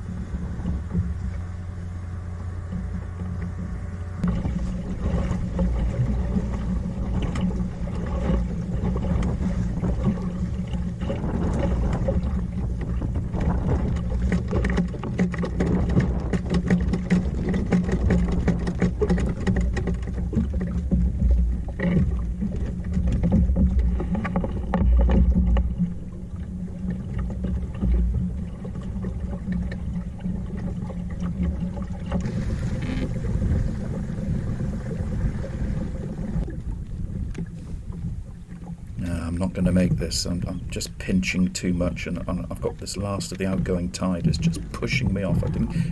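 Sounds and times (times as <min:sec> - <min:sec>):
boat knocks and clicks: 0:00.0 - 0:45.9
water splashing along boat hull: 0:00.0 - 0:45.9
wind buffeting microphone: 0:02.8 - 0:29.9, 0:31.5 - 0:45.9.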